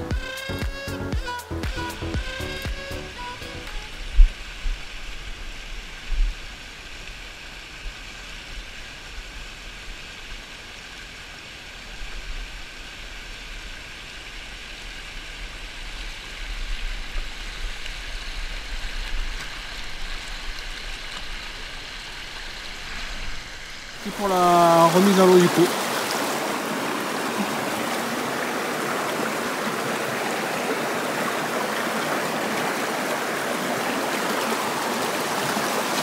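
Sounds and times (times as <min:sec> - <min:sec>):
river rushing over rocks: 0:12.5 - 0:36.0.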